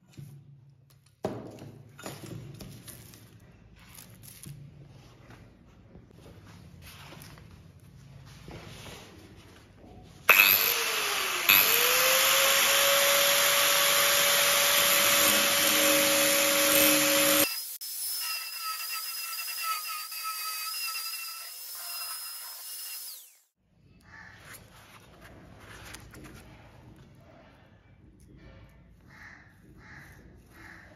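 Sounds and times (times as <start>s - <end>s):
power tool motor running: 10.3s - 23.5s.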